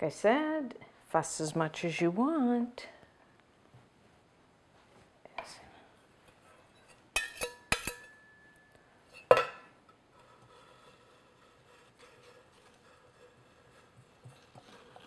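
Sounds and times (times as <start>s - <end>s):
metal scraper clinking on kitchenware: 7.2s - 8.5s.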